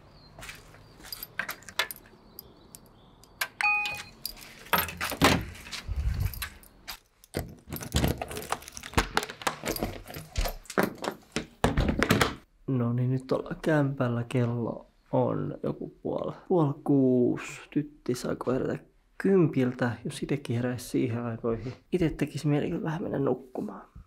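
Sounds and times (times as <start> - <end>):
keys jangling: 1.0 - 3.0, 3.8 - 8.7, 9.6 - 11.1
door reader beep: 3.5 - 4.2.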